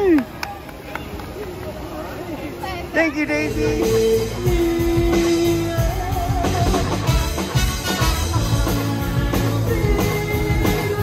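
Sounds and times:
electric guitars: 0:03.2 - 0:11.0
drum kit beat: 0:03.5 - 0:11.0
saxophones playing held notes: 0:06.8 - 0:09.1.

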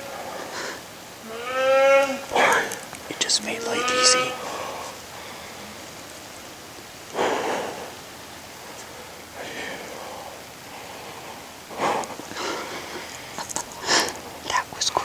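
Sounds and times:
faint steady hiss: 0:00.0 - 0:15.0
heavy noisy breaths: 0:04.4 - 0:06.0, 0:07.1 - 0:14.4.

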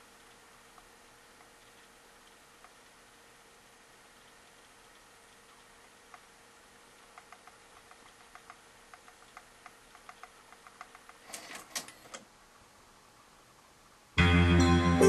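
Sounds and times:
faint light ticking: 0:06.9 - 0:11.2
loud music playing: 0:14.2 - 0:15.0.

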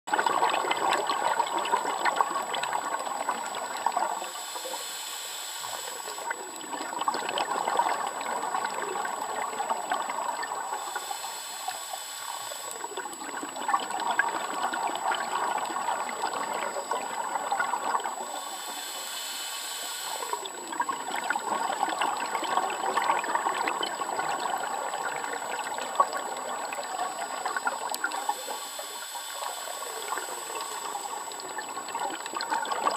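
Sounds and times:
exhaled air bubbling: 0:00.1 - 0:04.9, 0:05.6 - 0:19.1, 0:20.0 - 0:32.9
regulator hissing inhale: 0:04.2 - 0:06.3, 0:10.8 - 0:12.9, 0:18.2 - 0:20.4, 0:28.1 - 0:31.4.

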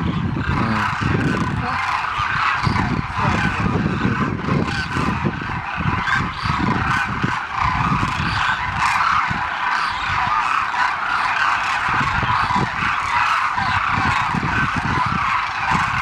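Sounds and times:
cranes honking in chorus: 0:00.0 - 0:16.0.

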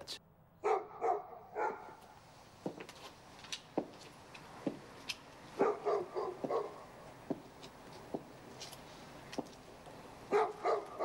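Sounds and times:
dog barking: 0:00.6 - 0:02.0, 0:05.6 - 0:06.9, 0:10.3 - 0:11.0.

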